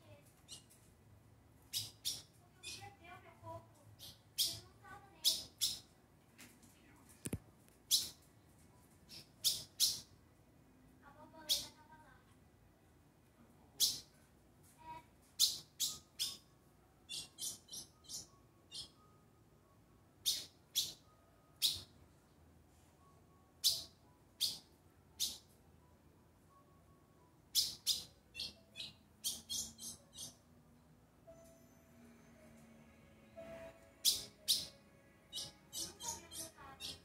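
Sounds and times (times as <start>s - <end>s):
bird chip calls: 27.5s - 30.4s.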